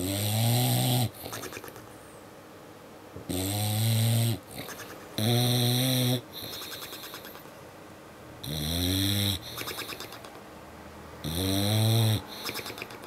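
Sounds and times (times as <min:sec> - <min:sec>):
dog snoring: 0:00.0 - 0:01.7, 0:03.3 - 0:07.4, 0:08.4 - 0:10.3, 0:11.2 - 0:13.0
lips fluttering: 0:01.1 - 0:01.9, 0:04.4 - 0:05.3, 0:06.3 - 0:07.6, 0:09.4 - 0:10.5, 0:12.2 - 0:13.0.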